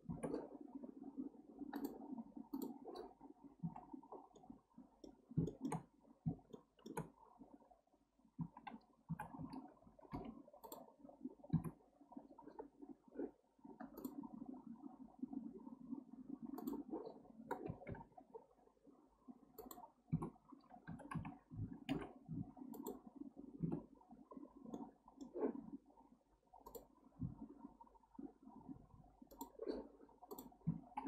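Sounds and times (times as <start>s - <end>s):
computer mouse and keyboard clicks: 0.0s - 0.6s, 1.6s - 7.2s, 8.4s - 10.9s, 11.5s - 11.8s, 12.4s - 14.3s, 16.5s - 18.2s, 19.6s - 23.0s, 26.6s - 27.5s, 29.2s - 31.0s.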